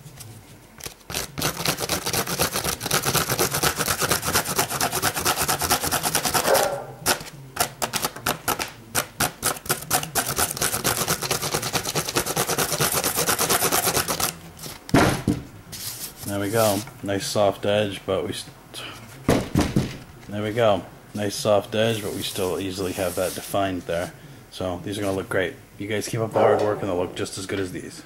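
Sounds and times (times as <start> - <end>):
saw blade rasping cork: 1.1 - 7.3, 9.0 - 14.3.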